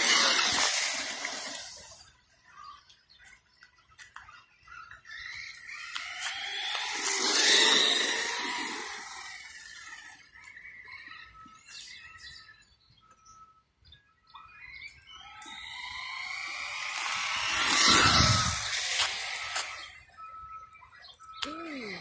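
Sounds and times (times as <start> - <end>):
rc truck electric motor whining: 0.0 - 3.0, 3.7 - 13.3, 14.4 - 22.0
faint bird chirps: 8.2 - 17.2, 17.9 - 22.0.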